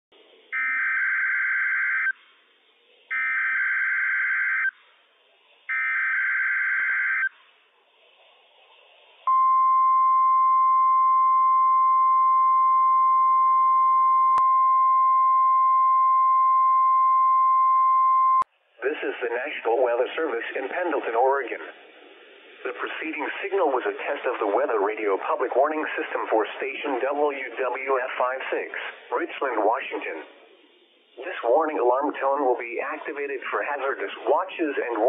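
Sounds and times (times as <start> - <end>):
high warning alarm tone: 0.5 - 2.2, 3.1 - 4.8, 5.7 - 7.3.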